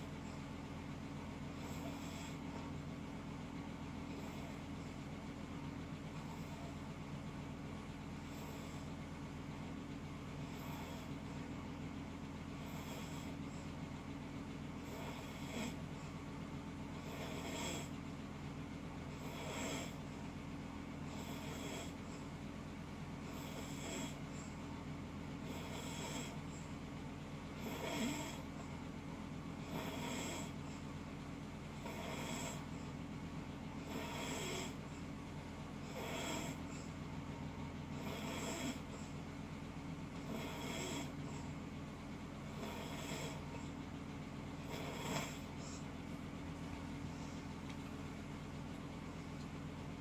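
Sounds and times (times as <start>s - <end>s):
steady low hum: 0.0s - 50.0s
loud rasping snoring: 1.4s - 2.6s, 8.2s - 8.9s, 10.4s - 11.4s, 12.5s - 13.5s, 14.7s - 15.9s, 16.8s - 18.0s, 19.1s - 20.1s, 21.0s - 22.0s, 23.2s - 24.4s, 25.4s - 26.5s, 27.5s - 28.6s, 29.6s - 30.8s, 31.7s - 32.8s, 33.8s - 34.9s, 35.8s - 37.0s, 37.8s - 39.2s, 40.1s - 41.6s, 42.4s - 43.8s, 44.6s - 45.8s.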